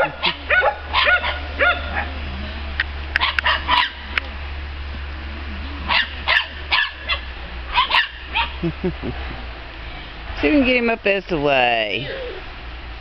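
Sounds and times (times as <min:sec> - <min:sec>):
puppy yipping: 0:00.0 - 0:02.1, 0:03.2 - 0:04.0, 0:05.9 - 0:08.6.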